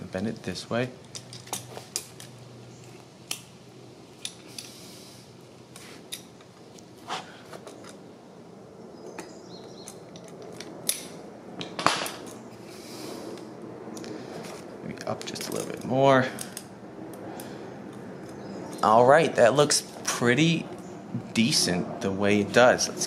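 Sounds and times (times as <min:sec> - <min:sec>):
metal parts clicking and clinking: 0:01.0 - 0:02.3, 0:09.8 - 0:12.4.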